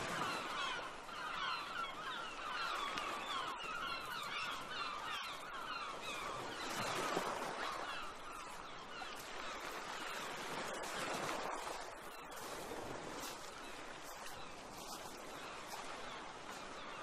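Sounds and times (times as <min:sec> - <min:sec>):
many birds calling: 0:00.0 - 0:11.5.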